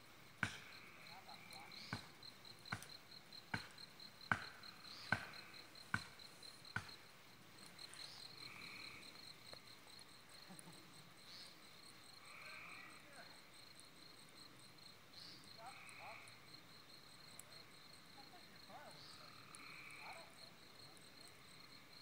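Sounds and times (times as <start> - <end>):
crickets chirping: 0.0 - 22.0
hatchet chopping wood: 0.4 - 0.7, 3.5 - 6.2.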